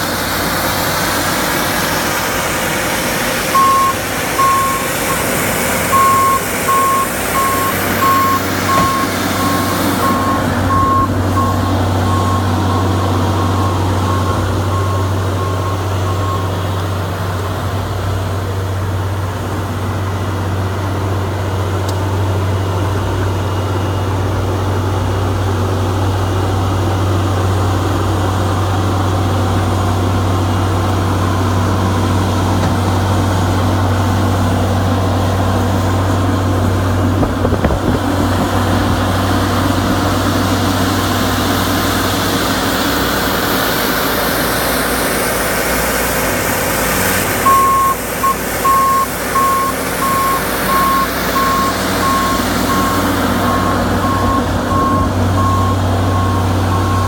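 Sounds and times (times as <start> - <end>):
diesel machinery running: 0.0 - 57.0
backup alarm beeping: 3.5 - 16.6, 47.4 - 57.0.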